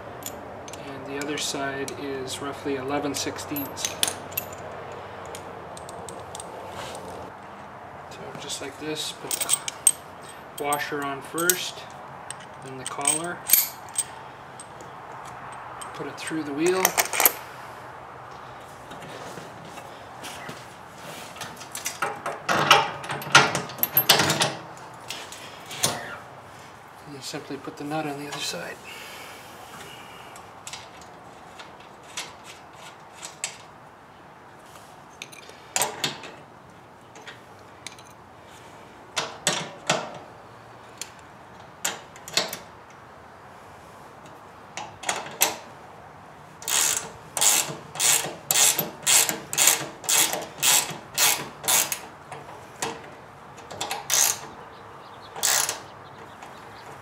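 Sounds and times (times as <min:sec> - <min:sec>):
ratchet wrench clicking: 0:46.6 - 0:52.0, 0:54.1 - 0:54.4, 0:55.4 - 0:55.8.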